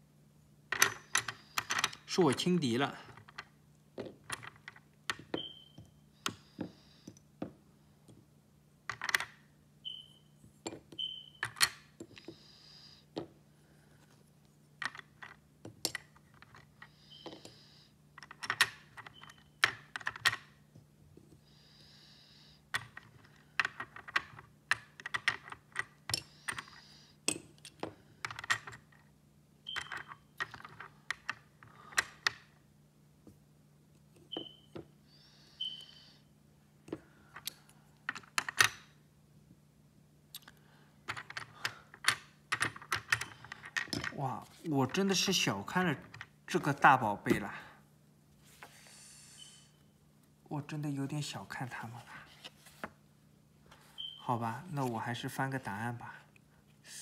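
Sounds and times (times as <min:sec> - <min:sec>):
plastic puzzle pieces clicking: 0:22.8 - 0:29.0, 0:41.1 - 0:44.2.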